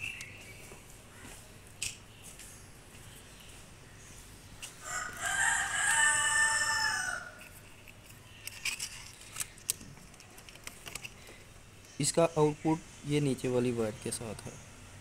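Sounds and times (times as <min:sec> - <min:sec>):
rooster crowing: 0:04.8 - 0:07.5.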